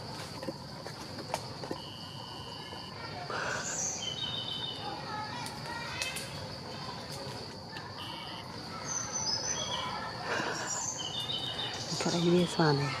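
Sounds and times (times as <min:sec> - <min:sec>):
high-pitched insect drone: 0:01.6 - 0:06.8
bird chirps: 0:03.5 - 0:05.0, 0:08.8 - 0:12.6.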